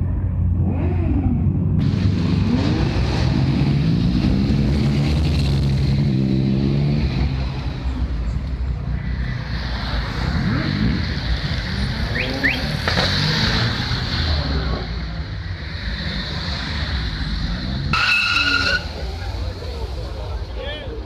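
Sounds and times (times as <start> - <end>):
car engines rumbling: 0.0 - 21.0
car engine revs: 0.6 - 7.9, 9.3 - 20.1.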